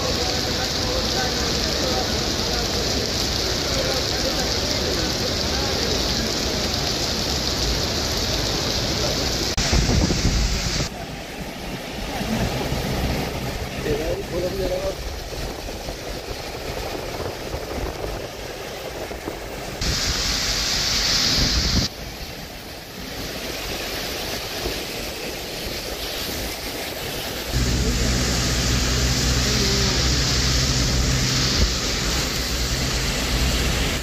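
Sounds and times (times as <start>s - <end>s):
rain hiss: 0.0s - 34.0s
tyres on wet roads: 0.0s - 34.0s
wind on microphone: 9.6s - 11.0s, 14.7s - 22.3s
low vehicle engine hum: 11.0s - 19.8s, 27.4s - 34.0s.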